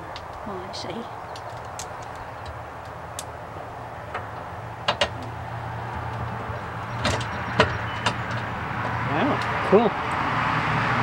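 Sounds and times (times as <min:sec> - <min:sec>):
sharp metal clicks and knocks: 0:04.1 - 0:08.5.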